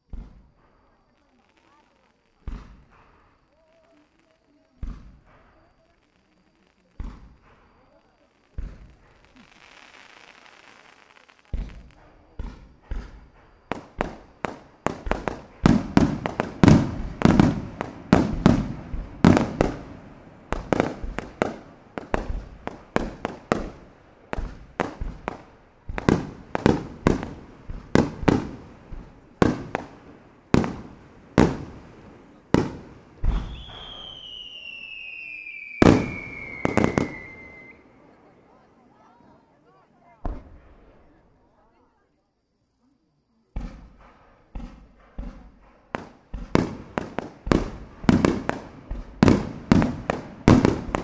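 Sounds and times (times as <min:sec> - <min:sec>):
soft hiss: 0:00.0 - 0:51.0
firework shells bursting: 0:00.1 - 0:37.9, 0:43.6 - 0:51.0
firework whistle sliding down: 0:33.3 - 0:37.9.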